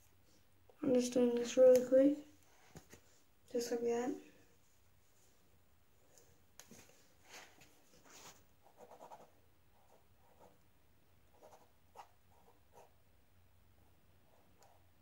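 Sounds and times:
pen scratching on paper: 8.6s - 10.6s, 11.3s - 12.9s.

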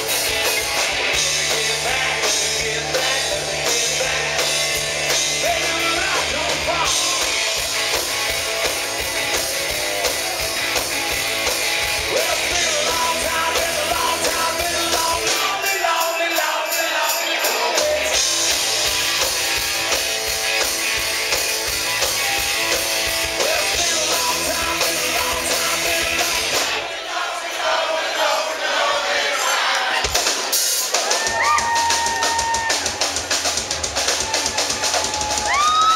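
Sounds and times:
bass guitar: 0.0s - 16.0s, 17.8s - 26.8s, 31.2s - 35.9s
distorted electric guitars: 0.0s - 26.8s
drum kit: 0.0s - 26.9s, 29.8s - 35.9s
man singing and shouting: 1.1s - 7.6s, 12.0s - 18.2s, 23.4s - 26.6s.

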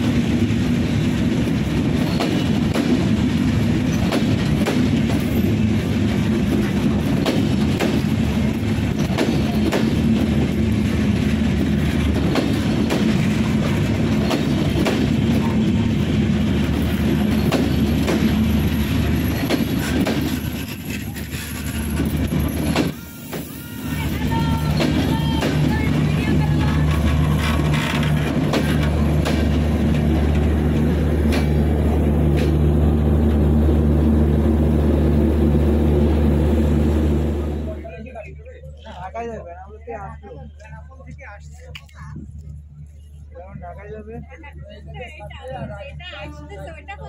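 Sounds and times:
wheels clacking over rail joints: 0.0s - 33.5s
train wheels rumbling on rails: 0.0s - 47.0s.

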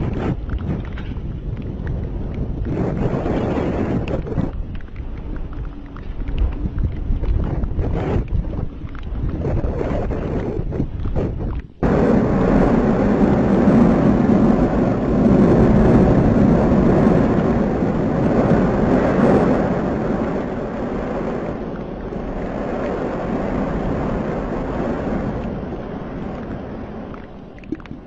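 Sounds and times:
low rumbling roar: 0.0s - 28.0s
lava spattering: 9.3s - 28.0s.

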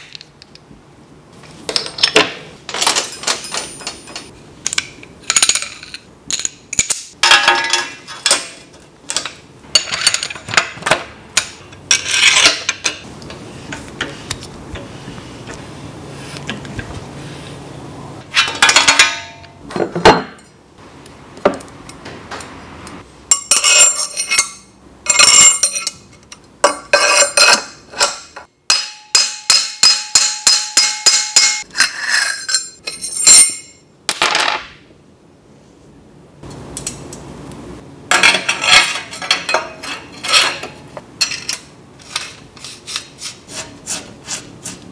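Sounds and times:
metal tools clinking and knocking: 1.7s - 13.1s, 18.3s - 20.6s, 22.4s - 34.7s, 38.1s - 42.3s.

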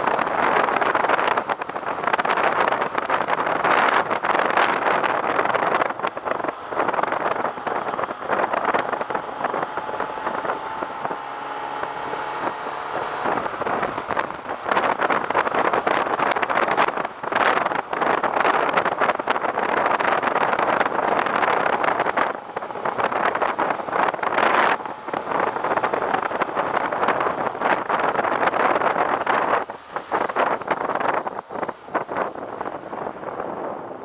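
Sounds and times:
wind rushing over microphone: 0.0s - 34.0s.

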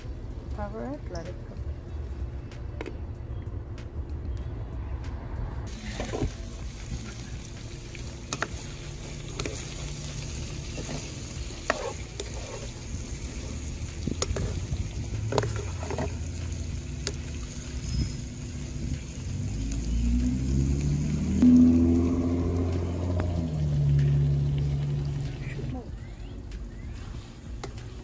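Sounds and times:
spatula stirring pan: 5.7s - 16.2s
meat sizzling in a pan: 5.7s - 22.1s.

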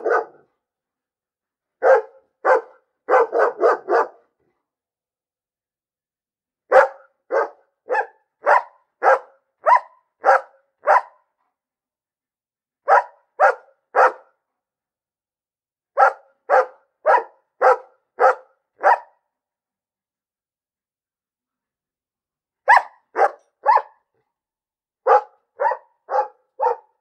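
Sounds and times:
dog barking: 0.0s - 0.5s, 1.8s - 4.4s, 6.7s - 11.4s, 12.8s - 14.4s, 16.0s - 19.3s, 22.6s - 24.1s, 25.0s - 27.0s.

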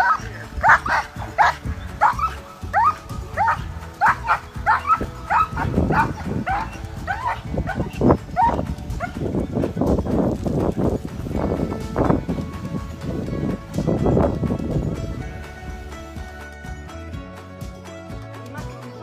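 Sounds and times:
dog yelping: 0.0s - 9.2s.

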